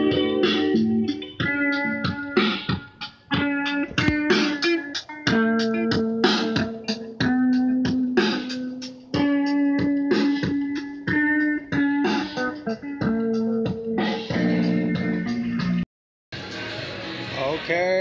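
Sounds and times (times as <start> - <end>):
electric guitar chords strummed: 0.0 - 15.8.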